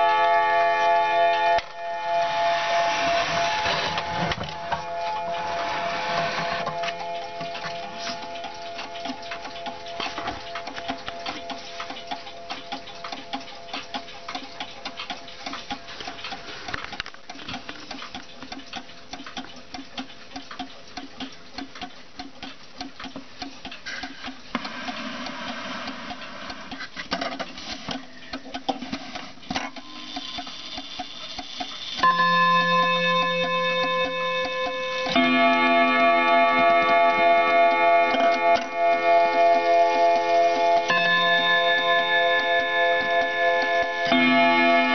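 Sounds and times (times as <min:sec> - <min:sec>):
clock chime striking: 0:00.0 - 0:15.4, 0:32.0 - 0:44.9
clock ticking: 0:00.0 - 0:44.9.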